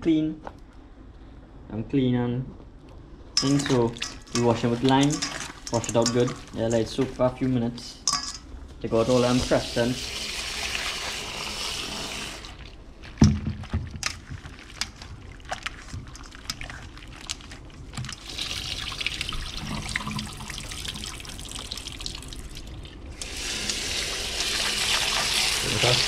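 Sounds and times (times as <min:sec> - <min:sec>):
hands squishing shrimp: 0:03.4 - 0:07.6, 0:12.6 - 0:19.6.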